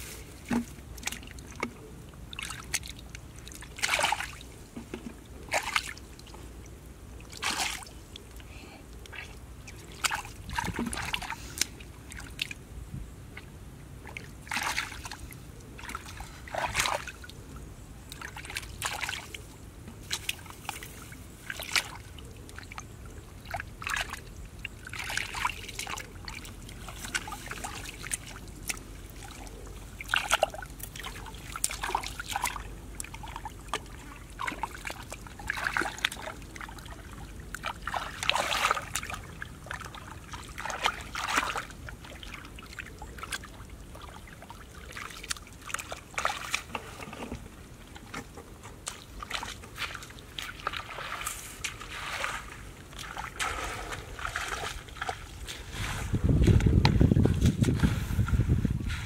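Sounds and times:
muddy water sloshing and splashing: 0.0 - 12.7, 13.3 - 59.0
hands groping through mud: 48.0 - 59.0.

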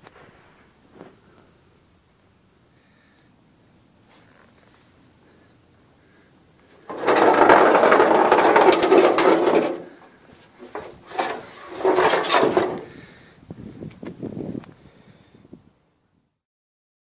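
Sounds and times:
metal tray scraping on asphalt: 6.6 - 13.2.

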